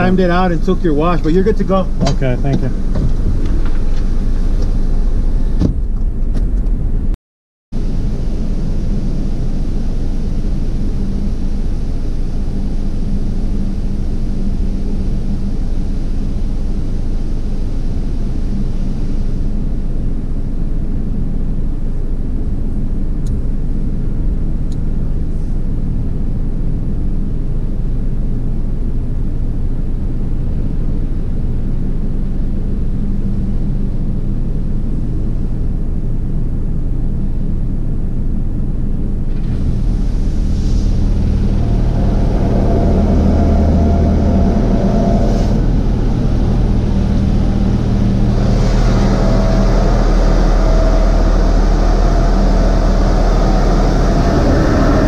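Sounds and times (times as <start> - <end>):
car wash machinery rumbling: 0.0 - 7.2, 7.8 - 55.0
hiss with whining tone: 7.8 - 20.8, 39.2 - 55.0.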